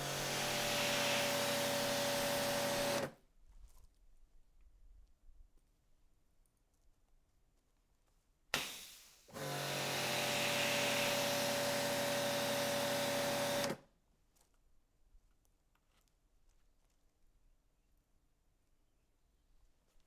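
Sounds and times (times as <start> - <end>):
pressure washer spray: 0.0 - 3.1, 8.6 - 13.6
pump motor humming: 0.0 - 3.1, 9.3 - 13.8.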